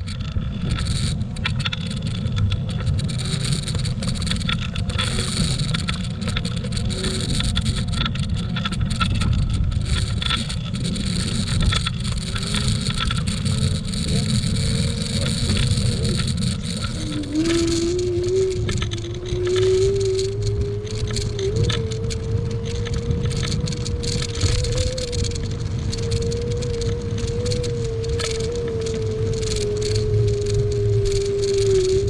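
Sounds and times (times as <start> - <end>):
wind rumble on microphone: 0.0 - 32.0
electric motor whine: 9.7 - 32.0.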